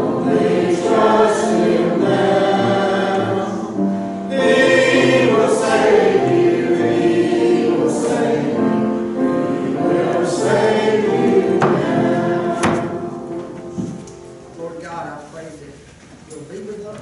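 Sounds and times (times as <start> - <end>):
congregation singing a hymn: 0.0 - 14.6.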